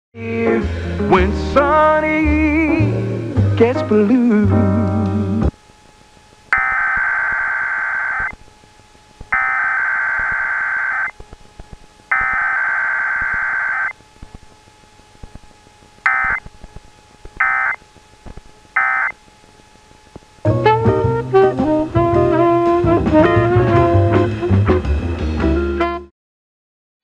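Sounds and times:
digital data bursts: 0:06.5 - 0:08.4, 0:09.3 - 0:11.2, 0:12.1 - 0:14.0, 0:16.0 - 0:16.5, 0:17.4 - 0:17.8, 0:18.7 - 0:19.2.

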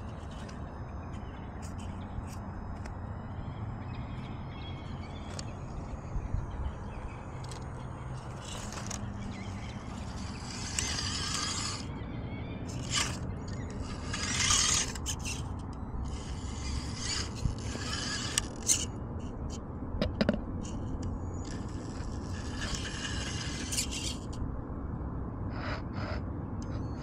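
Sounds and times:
small electric motor whirring: 0:00.0 - 0:12.0, 0:12.6 - 0:19.6, 0:20.6 - 0:24.4
tyres clicking and scraping on stone: 0:07.4 - 0:11.9, 0:12.7 - 0:18.9, 0:20.0 - 0:24.4.

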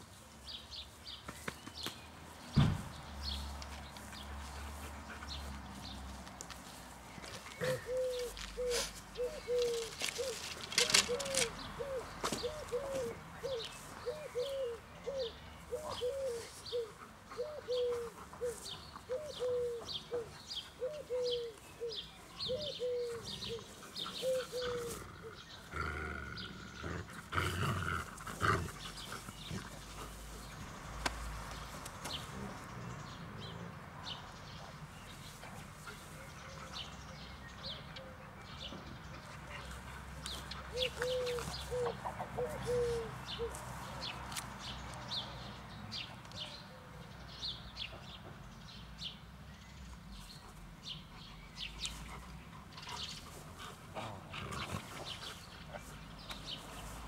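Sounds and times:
dog growling: 0:24.5 - 0:29.6.

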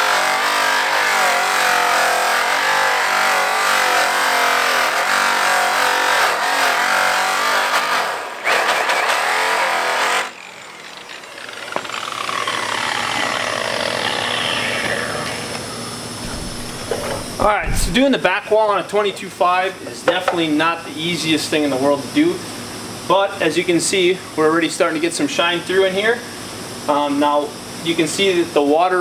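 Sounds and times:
angle grinder buffing metal: 0:00.0 - 0:18.0
faint whine: 0:10.7 - 0:18.6.

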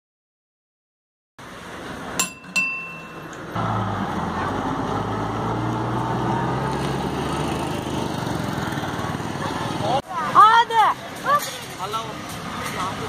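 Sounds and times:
bus engine humming: 0:01.4 - 0:13.0
street noise: 0:01.4 - 0:13.0
sharp metallic dings: 0:02.2 - 0:03.4.

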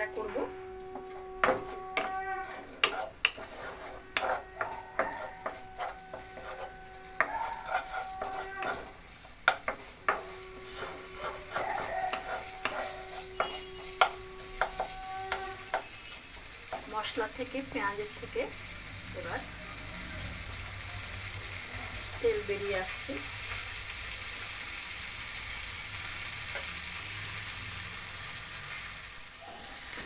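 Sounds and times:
wooden spatula scraping a pan: 0:01.3 - 0:18.0
paste sizzling in oil: 0:01.4 - 0:30.0
spatula knocking against pan: 0:04.2 - 0:06.6, 0:11.5 - 0:15.9.

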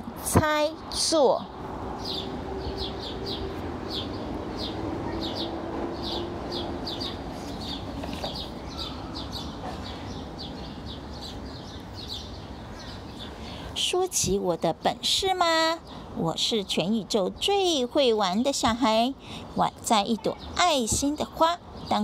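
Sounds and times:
small bird chirping: 0:02.0 - 0:13.6.

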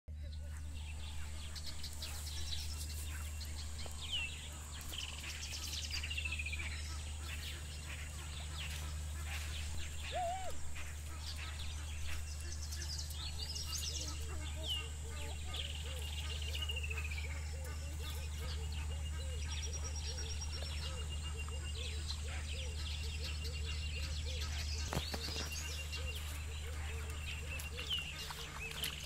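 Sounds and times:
bird song: 0:00.1 - 0:29.0
steady low rumble: 0:00.1 - 0:29.0.

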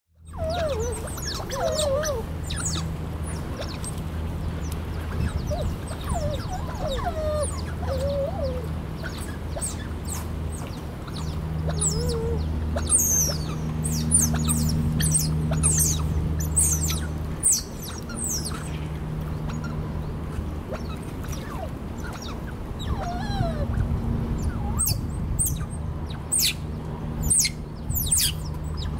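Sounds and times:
otters chirping and squeaking: 0:00.2 - 0:04.0, 0:05.0 - 0:19.8, 0:27.2 - 0:28.9
steady low hum: 0:00.2 - 0:28.9.

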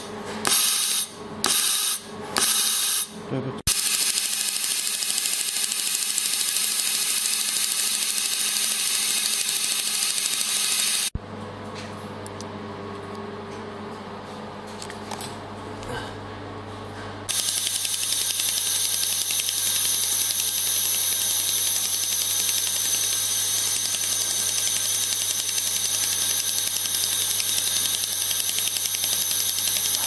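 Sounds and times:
high-pitched machine tones: 0:00.0 - 0:11.2, 0:17.3 - 0:30.0
laser welder crackling ticks: 0:03.7 - 0:11.1, 0:17.3 - 0:30.0
low machine hum: 0:11.1 - 0:30.0.

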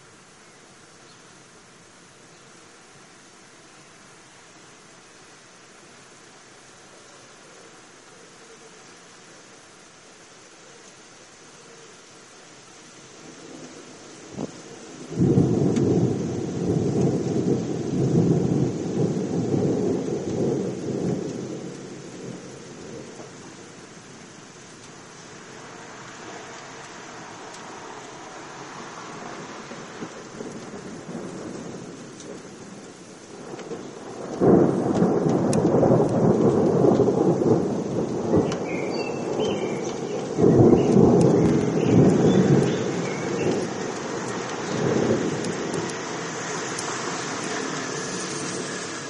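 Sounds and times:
thunder rumbling: 0:13.3 - 0:49.0
faint bird chirps: 0:38.4 - 0:43.7.

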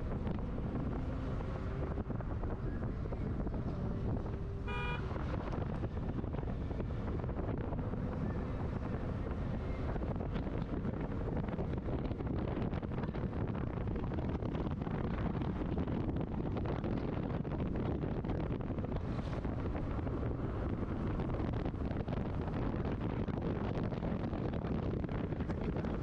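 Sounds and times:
car engine and road noise: 0:00.0 - 0:26.0
wind buffeting microphone: 0:00.0 - 0:26.0
car horn beep: 0:04.6 - 0:05.1.

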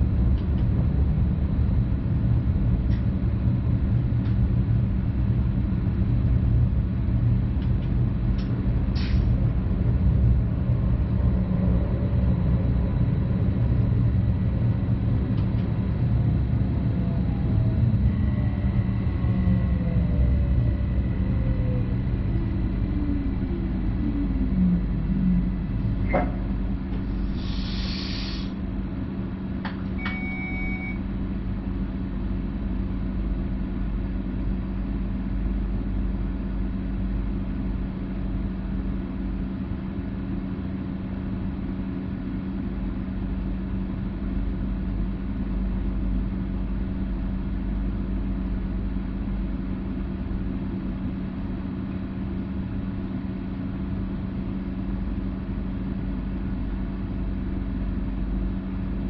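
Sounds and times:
train electrical hum and rumble: 0:00.0 - 0:59.0
short hiss: 0:27.4 - 0:28.6
brief tone: 0:29.9 - 0:31.1.

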